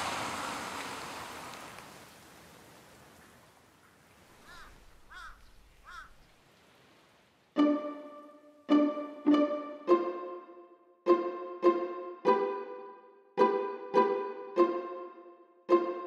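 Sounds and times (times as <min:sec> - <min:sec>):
crow cawing: 0:04.4 - 0:06.2.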